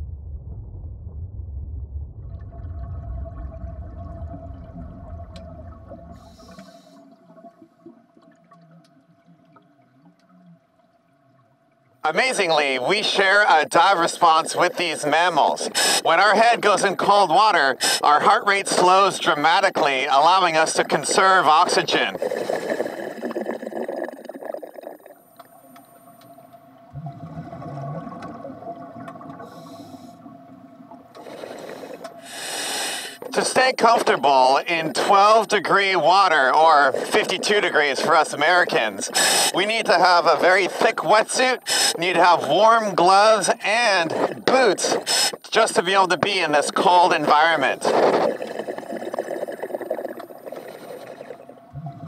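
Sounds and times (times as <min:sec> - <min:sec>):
low wavering hum: 0:00.0 - 0:06.8
bubbles gurgling underwater: 0:00.0 - 0:12.0, 0:14.2 - 0:41.0, 0:41.6 - 0:52.0
low rumble of moving water: 0:00.0 - 0:45.4, 0:46.1 - 0:52.0
faint steady hum: 0:00.0 - 0:52.0.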